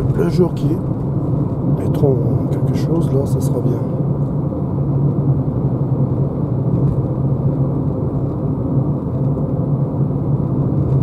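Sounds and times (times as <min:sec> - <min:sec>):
tyre and road rumble: 0:00.0 - 0:11.0.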